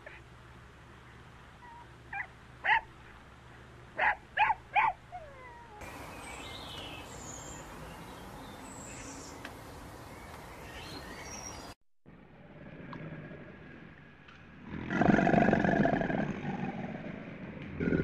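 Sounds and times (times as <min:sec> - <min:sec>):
outdoor background noise: 0:00.0 - 0:18.0
dog yipping: 0:01.6 - 0:02.9, 0:04.0 - 0:05.8.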